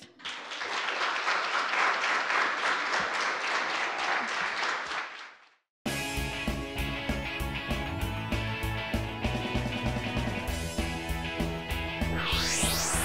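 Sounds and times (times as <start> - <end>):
audience applauding: 0.0 - 5.4.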